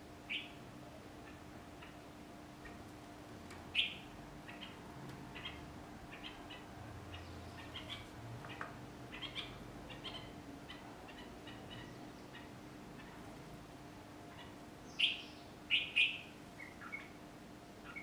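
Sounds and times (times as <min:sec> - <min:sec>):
faint steady hum: 0:00.0 - 0:18.0
small birds chirping: 0:00.3 - 0:00.6, 0:03.4 - 0:13.4, 0:14.3 - 0:17.2, 0:17.8 - 0:18.0.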